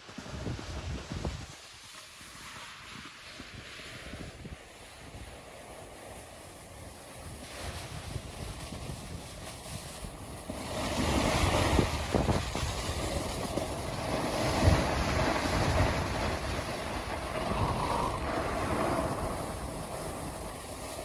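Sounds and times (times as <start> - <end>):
wind buffeting microphone: 0.0 - 1.6, 6.5 - 21.0
skis hissing over snow: 0.0 - 21.0.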